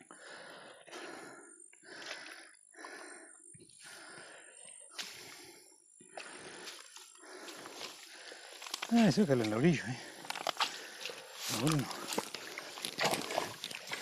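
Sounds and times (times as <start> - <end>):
heavy breathing: 0.0 - 8.9, 9.9 - 14.0.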